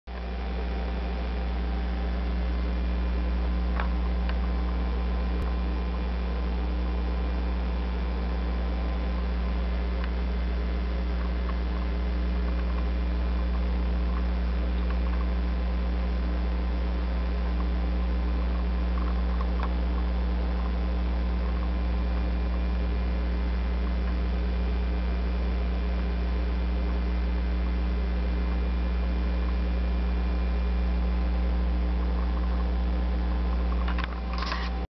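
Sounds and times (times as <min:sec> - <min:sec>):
low electrical mains hum: 0:00.1 - 0:34.9
faint ticks: 0:09.9 - 0:15.4, 0:17.3 - 0:23.0.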